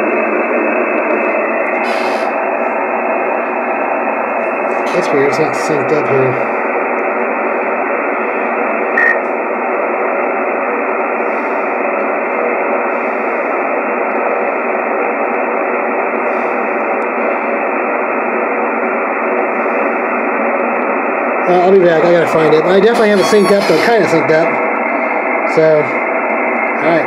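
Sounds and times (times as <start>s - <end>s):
radio static hiss: 0.9s - 2.7s, 4.3s - 9.4s, 15.9s - 26.0s
short radio tone blip: 22.9s - 24.2s.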